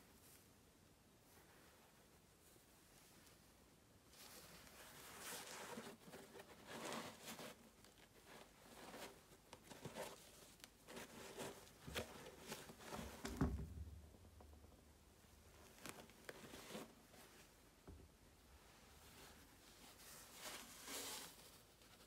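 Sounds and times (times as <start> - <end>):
gloves rustling against shoe: 0.0 - 13.5, 15.5 - 22.0
low thump: 13.2 - 14.7.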